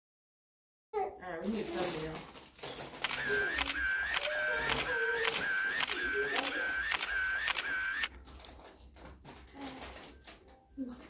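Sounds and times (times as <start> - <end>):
phone camera shutter clicks: 3.0 - 8.1.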